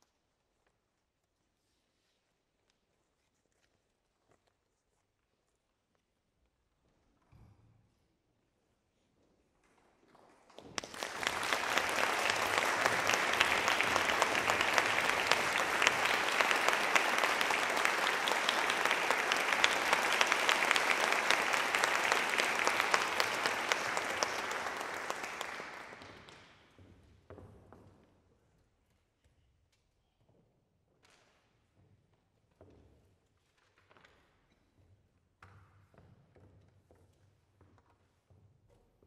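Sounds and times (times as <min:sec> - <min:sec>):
audience applauding: 0:10.7 - 0:26.4.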